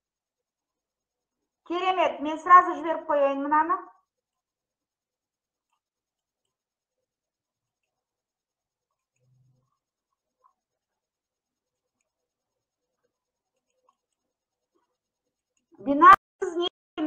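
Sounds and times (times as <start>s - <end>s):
faint low hum: 0.0s - 16.7s
faint clicks: 5.6s - 6.7s, 13.0s - 15.7s.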